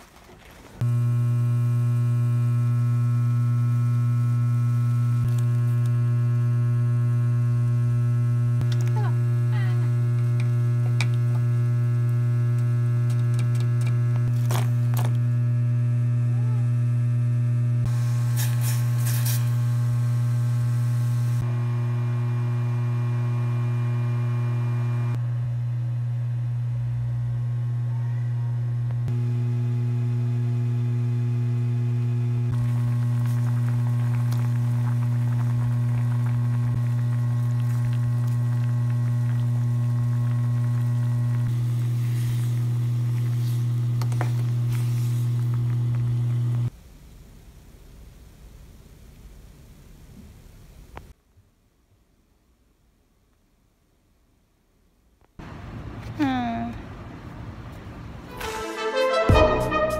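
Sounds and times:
loud low electrical hum: 0.8s - 46.8s.

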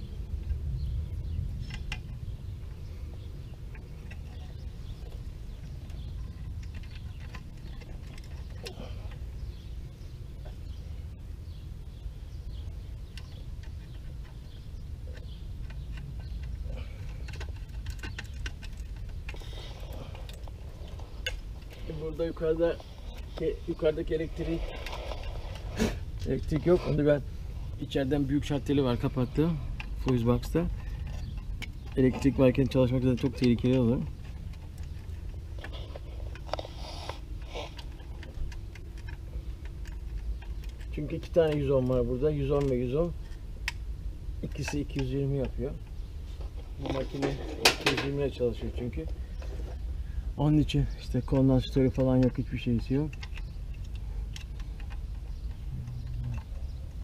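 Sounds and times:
steady low rumble: 0.0s - 57.0s
hand tool clicking and scraping: 13.0s - 27.2s, 27.8s - 43.8s, 51.1s - 57.0s.

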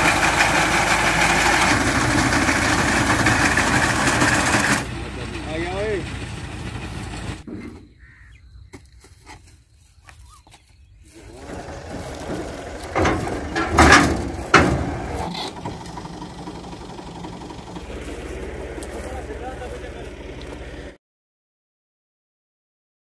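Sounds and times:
thresher and tractor engine drone: 0.0s - 7.7s, 11.0s - 21.0s
loud knocks: 11.5s - 15.8s.

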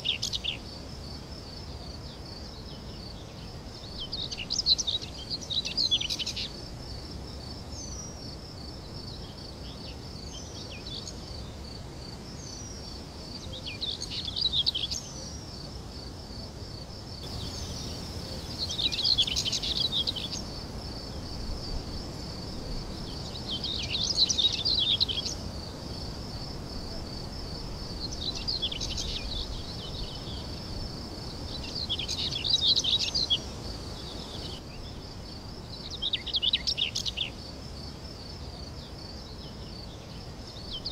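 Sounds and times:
birds singing: 3.8s - 6.6s, 17.2s - 20.5s, 23.1s - 25.4s, 28.0s - 30.7s, 31.5s - 35.0s
pulsing insect trill: 17.2s - 22.5s.

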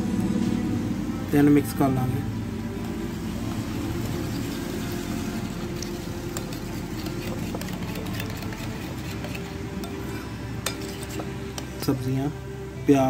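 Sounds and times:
steady low hum: 0.0s - 13.0s
spoon stirring yogurt: 3.5s - 12.1s
spoon clinking on plate: 10.6s - 11.7s.

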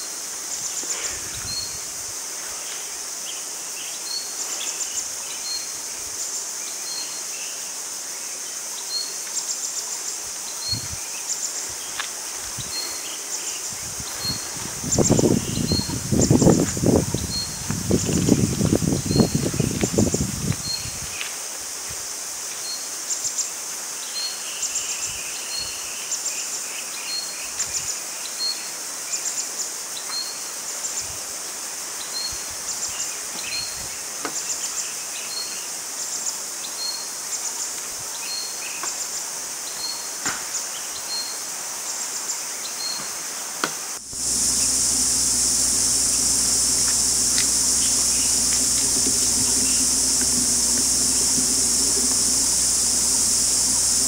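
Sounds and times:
insects buzzing: 0.0s - 25.8s, 43.3s - 54.0s
insect drone: 0.0s - 27.8s, 44.0s - 54.0s
insect chirp: 0.0s - 54.0s
low hum: 44.0s - 54.0s
faint clicks: 44.2s - 54.0s.

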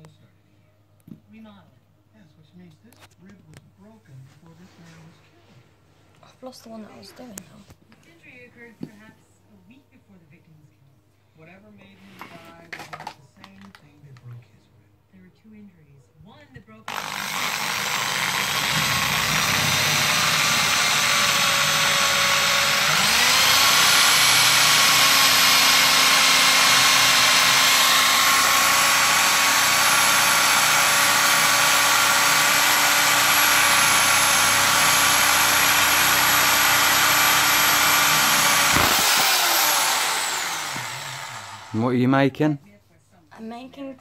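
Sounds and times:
electric drill whining: 16.9s - 41.9s.

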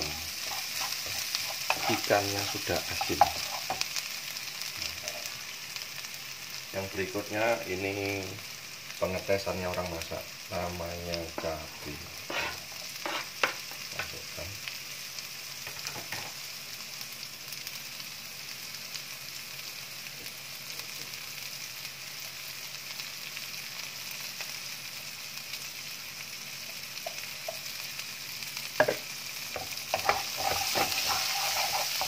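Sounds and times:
food sizzling in oil: 0.0s - 32.0s
spatula knocking and scraping: 0.4s - 3.8s, 12.2s - 14.1s, 28.8s - 29.0s, 29.6s - 32.0s.

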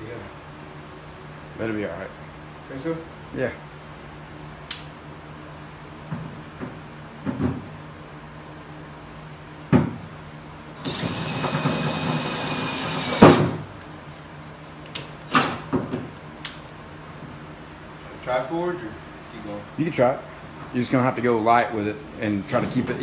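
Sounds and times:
drill with hole saw cutting metal: 10.8s - 13.4s.

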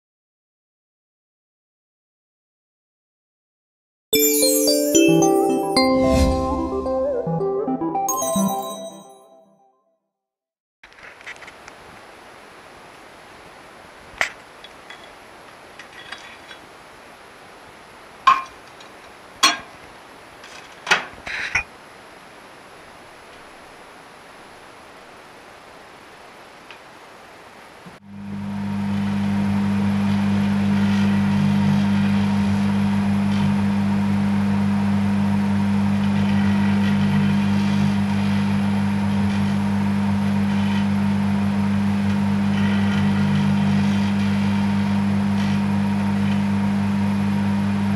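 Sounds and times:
microwave oven humming: 28.0s - 47.9s.

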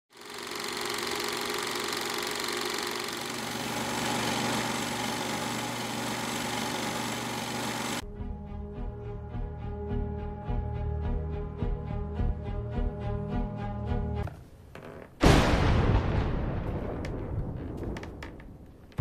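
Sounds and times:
film projector clatter: 0.1s - 8.0s.

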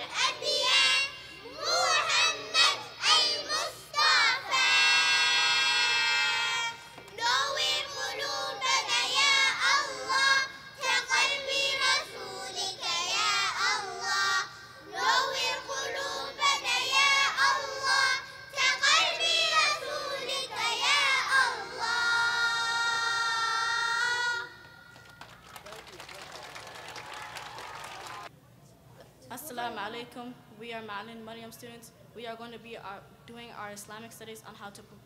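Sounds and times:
child singing a chant: 0.0s - 24.6s.

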